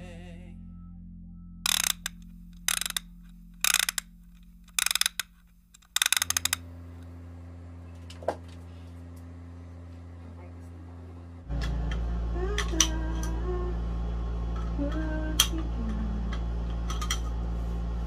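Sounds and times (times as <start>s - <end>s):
steady low hum: 0.0s - 18.0s
rapid mechanical clicking: 1.7s - 6.7s.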